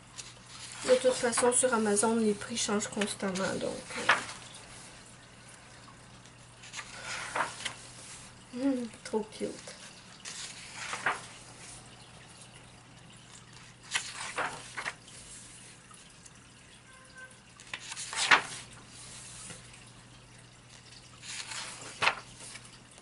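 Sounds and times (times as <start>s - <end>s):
paper pages rustling: 0.2s - 5.0s, 6.2s - 8.4s, 9.4s - 11.9s, 13.2s - 16.1s, 17.6s - 19.8s, 20.7s - 22.8s.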